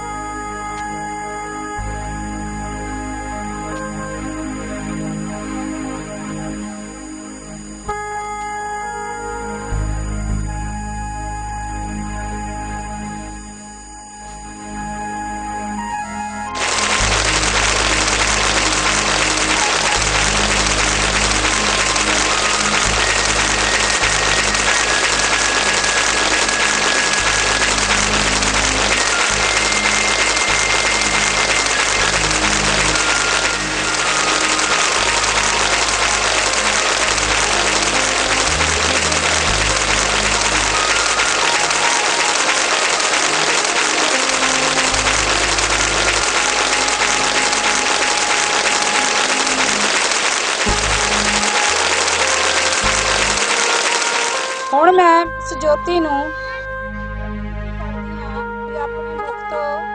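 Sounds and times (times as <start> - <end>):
low hum: 0.0 - 59.4
music playing: 0.0 - 59.9
crowd applauding: 16.6 - 55.0.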